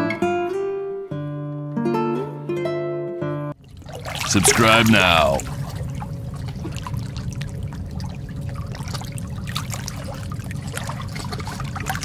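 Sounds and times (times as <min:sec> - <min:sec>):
water trickling and dripping: 0:03.6 - 0:12.0
steady low rumble: 0:05.4 - 0:11.9.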